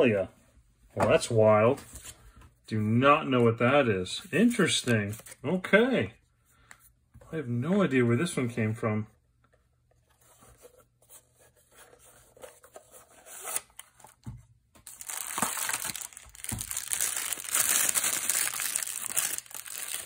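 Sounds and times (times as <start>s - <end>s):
plastic wrapping crinkling: 14.8s - 20.0s.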